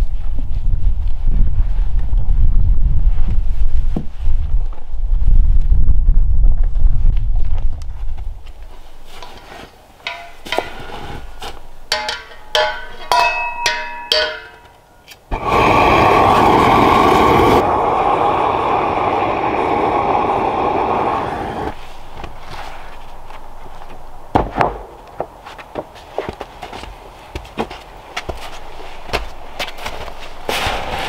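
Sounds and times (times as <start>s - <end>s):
metallic clinks: 10.0s - 15.2s
sharp knocks: 10.1s - 11.0s
propane torch hissing: 15.3s - 21.8s.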